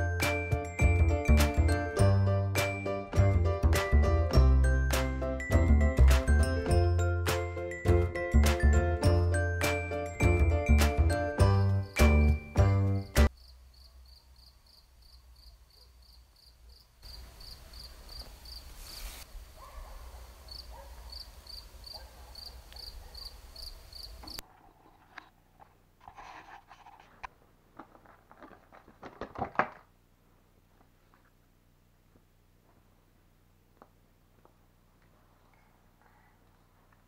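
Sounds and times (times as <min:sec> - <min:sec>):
cricket chirping: 0:13.0 - 0:19.0, 0:20.5 - 0:24.4
rustling and handling knocks: 0:27.7 - 0:29.9.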